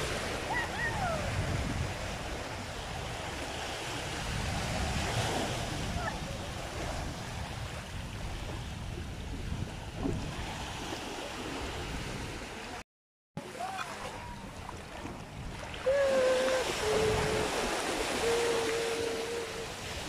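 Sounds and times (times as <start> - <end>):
small waves washing onto shore: 0.0 - 12.8, 13.4 - 20.0
wind on microphone: 0.0 - 12.8, 13.7 - 20.0
person singing long notes: 15.9 - 20.0.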